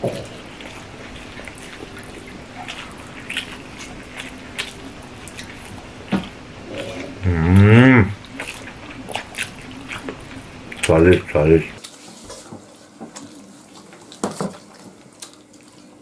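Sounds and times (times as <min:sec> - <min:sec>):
chewing: 0:00.0 - 0:16.0
eating rice with fingers: 0:00.0 - 0:16.0
person humming mmm: 0:06.7 - 0:08.3.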